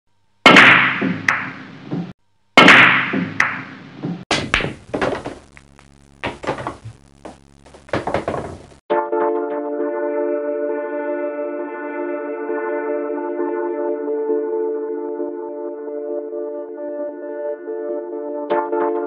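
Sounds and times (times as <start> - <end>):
sharp knocks and clacks: 0.5 - 8.8
low steady hum: 4.4 - 8.8.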